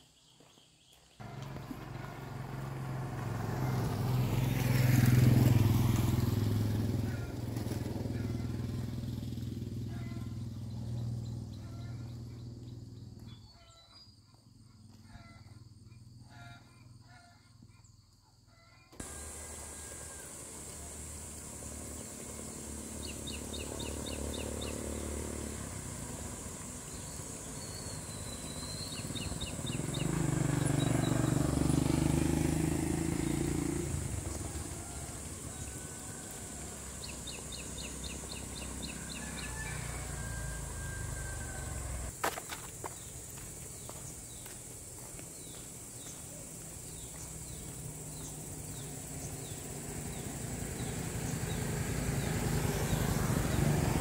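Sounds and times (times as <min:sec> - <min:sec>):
motorcycle engine running: 0:01.2 - 0:13.4, 0:19.0 - 0:54.0
bird chirps: 0:26.8 - 0:31.4.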